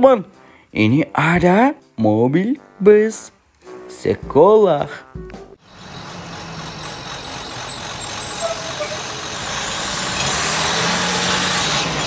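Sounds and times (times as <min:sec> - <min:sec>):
bus engine driving past: 0:05.6 - 0:12.0
thin high squeal: 0:05.7 - 0:10.6.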